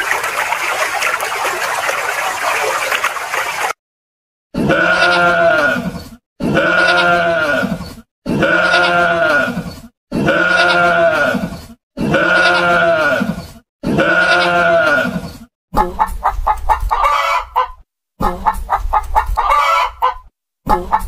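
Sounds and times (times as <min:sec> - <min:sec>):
livestock bleating: 0:04.6 - 0:05.8, 0:06.4 - 0:15.2.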